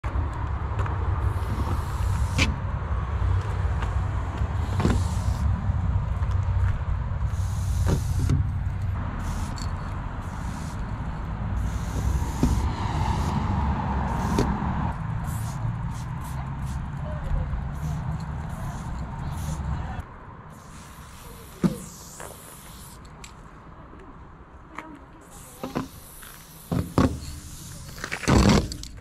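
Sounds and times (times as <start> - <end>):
spray paint can hissing: 1.2 - 2.6, 4.5 - 5.5, 7.2 - 19.8, 20.5 - 23.4, 25.2 - 29.0.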